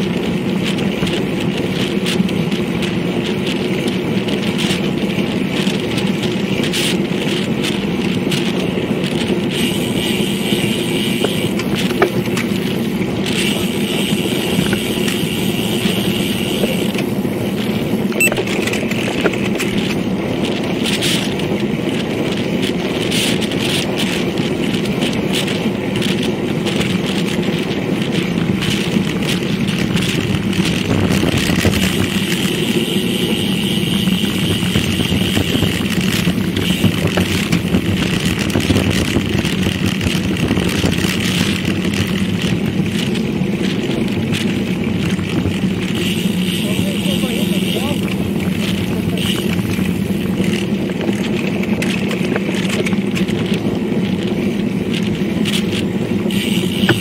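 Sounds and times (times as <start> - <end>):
bicycle rolling on pavement: 0.0 - 57.0
small clicks and rattles: 0.0 - 57.0.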